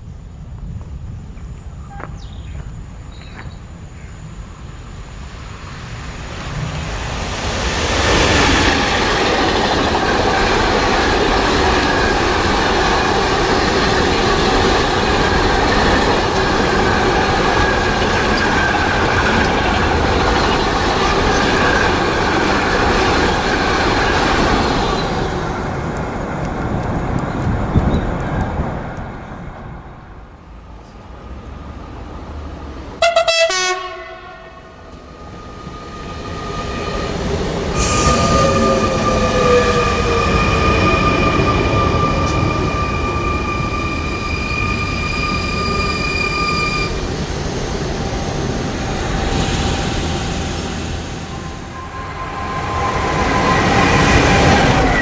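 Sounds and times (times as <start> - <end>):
freight train passing at speed: 0.0 - 55.0
steel wheels rolling on rails: 6.3 - 30.1.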